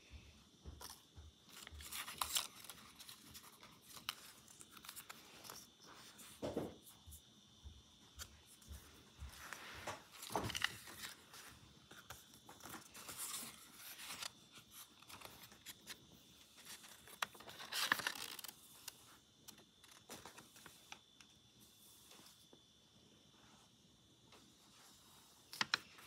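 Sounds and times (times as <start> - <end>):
paper rustling and crinkling: 0.8 - 7.2, 8.2 - 21.0, 25.0 - 26.0.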